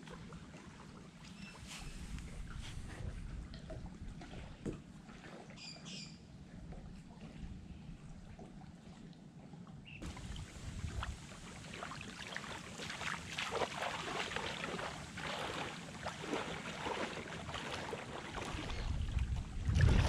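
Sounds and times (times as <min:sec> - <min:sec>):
wind rumbling on microphone: 0:01.7 - 0:04.8, 0:10.0 - 0:11.8, 0:17.6 - 0:20.0
water splashing around wading legs: 0:10.0 - 0:20.0.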